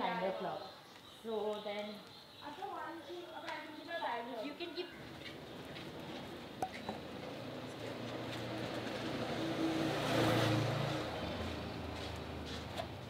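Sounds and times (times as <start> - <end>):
vehicle engine passing by: 5.4 - 13.0.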